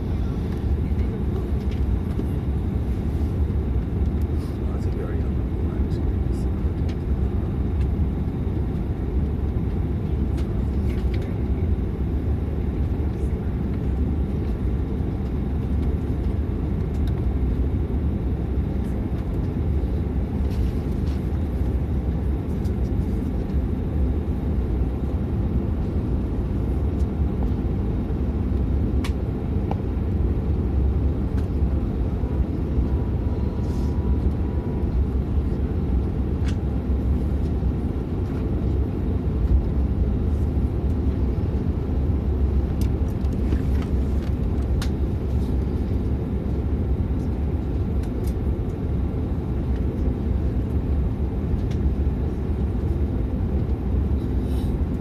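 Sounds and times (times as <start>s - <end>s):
airplane cabin rumble: 0.0s - 55.0s.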